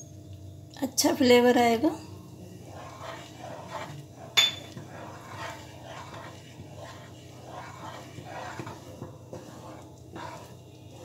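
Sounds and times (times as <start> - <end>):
wooden spatula scraping a pan: 2.5 - 11.0
spatula clinking on pan: 4.4 - 4.8.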